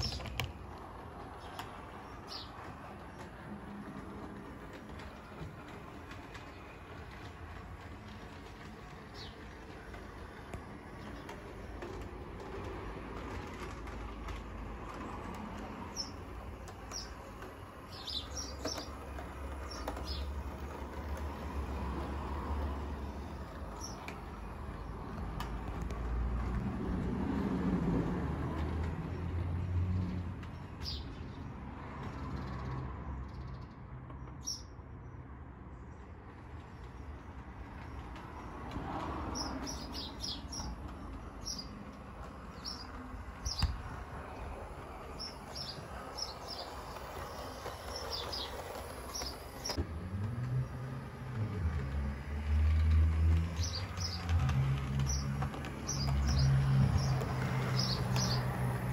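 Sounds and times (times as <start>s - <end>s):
birds chirping: 0.0s - 25.8s, 39.3s - 49.8s, 53.4s - 58.9s
model train motor humming: 0.0s - 26.8s, 41.8s - 58.9s.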